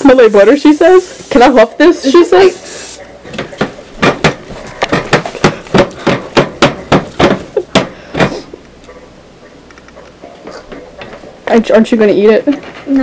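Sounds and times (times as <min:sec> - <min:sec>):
spatula knocking mixing bowl: 0:03.3 - 0:08.4.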